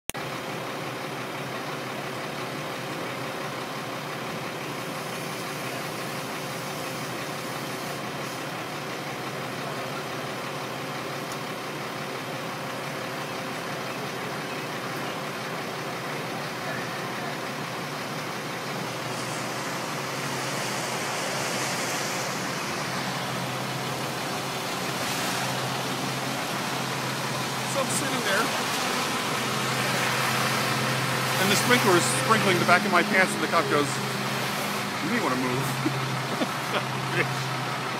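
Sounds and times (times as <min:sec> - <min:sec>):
truck engine idling: 0:00.1 - 0:37.9
hiss: 0:19.0 - 0:24.0.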